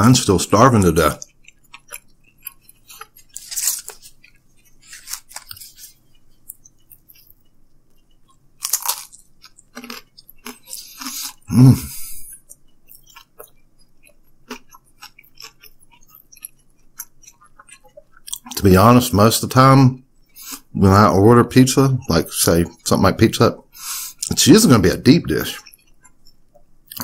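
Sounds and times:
crisp pizza crunches: 0.4s - 7.4s, 8.3s - 11.7s
low throat sound: 11.4s - 12.3s
wet mouth clicks: 25.6s - 27.0s.

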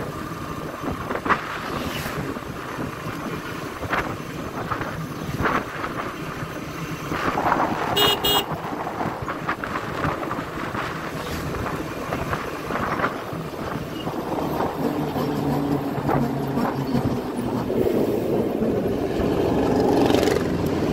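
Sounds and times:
motorcycle riding at speed: 0.0s - 20.9s
wind and road rush: 0.0s - 20.9s
vehicle horn double beep: 8.0s - 8.5s.

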